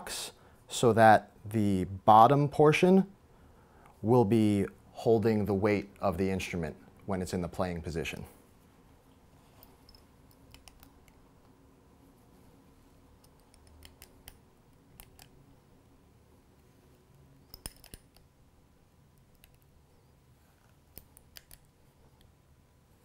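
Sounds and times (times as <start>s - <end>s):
small wrench clicking on metal: 9.8s - 11.2s, 13.2s - 14.4s, 17.5s - 18.3s, 20.9s - 21.7s.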